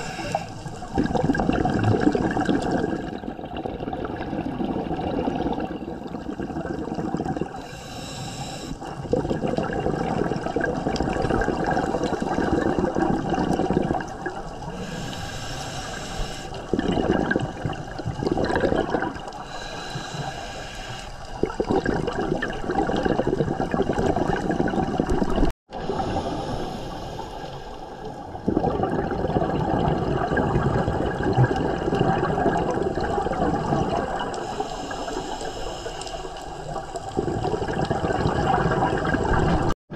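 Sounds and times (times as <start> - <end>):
hissing regulator inhalations: 0.0 - 0.9, 7.5 - 9.0, 14.6 - 16.9, 19.3 - 21.4, 25.8 - 28.4, 34.3 - 36.8
regulator exhaled bubbles: 0.0 - 20.4, 21.4 - 27.2, 27.9 - 39.8.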